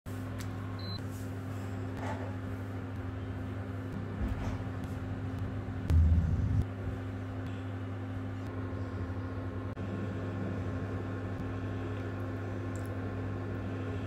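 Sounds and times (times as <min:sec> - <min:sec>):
low electrical hum: 0:00.1 - 0:14.0.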